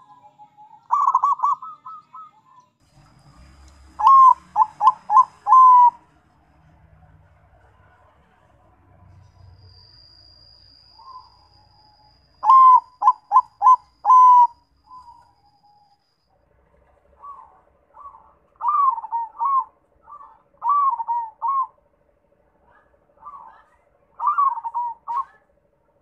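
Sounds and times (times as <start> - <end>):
doves cooing: 0.0 - 2.6, 3.9 - 6.2, 12.4 - 15.3, 16.5 - 26.0
faint steady hum: 0.0 - 26.0.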